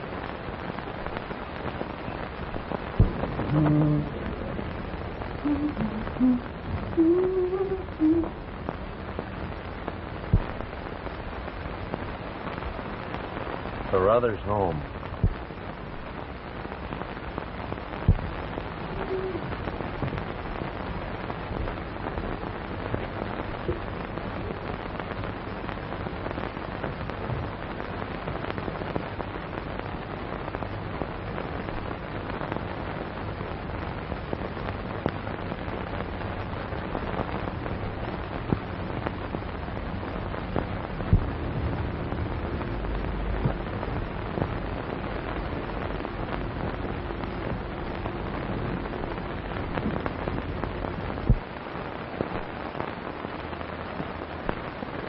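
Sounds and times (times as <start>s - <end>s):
film soundtrack hiss and crackle: 0.0s - 55.0s
sharp pops: 2.7s - 4.4s.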